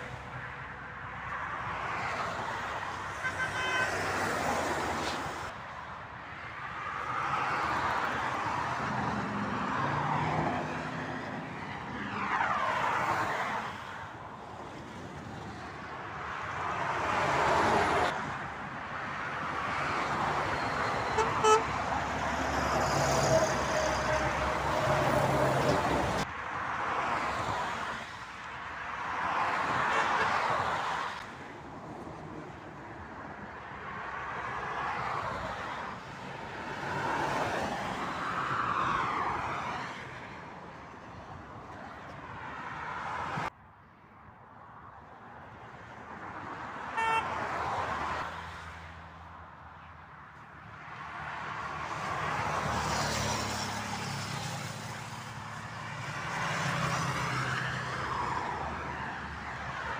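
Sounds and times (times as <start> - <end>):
motorway traffic passing: 0.0 - 59.9
vehicle horn: 3.1 - 4.3, 21.1 - 21.8, 47.0 - 47.4.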